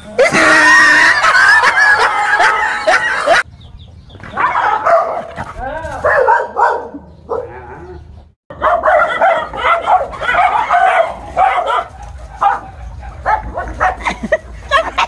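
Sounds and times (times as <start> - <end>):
dog barking: 4.3 - 5.4, 6.0 - 7.6, 8.5 - 14.1.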